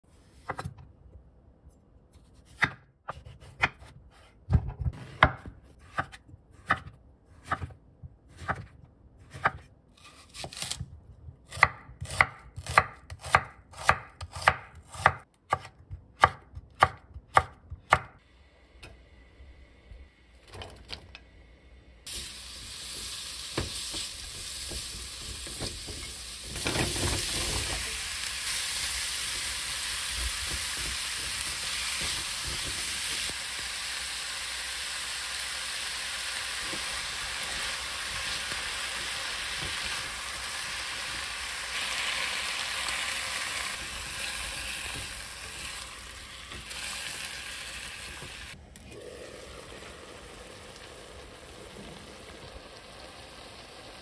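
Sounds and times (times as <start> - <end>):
knife chopping on wooden board: 2.4 - 9.6, 11.5 - 18.1
pan sizzling: 22.0 - 54.0.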